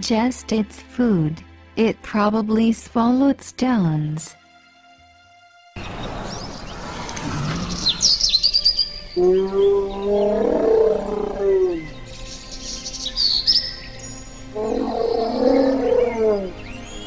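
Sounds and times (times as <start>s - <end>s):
high bird chirps: 5.8s - 12.0s
low moaning dinosaur call: 6.2s - 8.4s, 9.1s - 12.0s, 14.5s - 16.8s.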